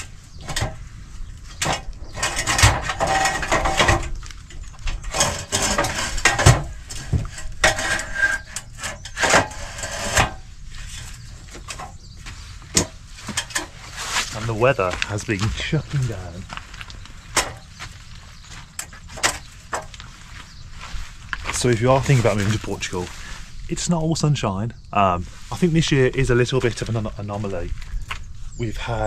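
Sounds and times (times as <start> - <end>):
ladder scraping against timber: 1.5 - 23.4
aluminium ladder knocking and clattering: 1.6 - 10.4.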